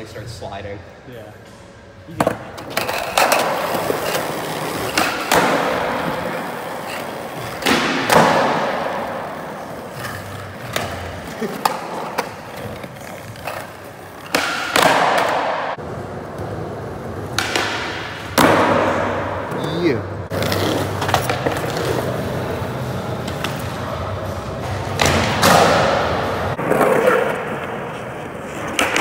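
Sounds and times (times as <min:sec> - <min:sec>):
skateboards clacking on ground: 0:02.1 - 0:08.7
skateboard wheels rolling on concrete: 0:02.2 - 0:17.6, 0:20.3 - 0:29.0.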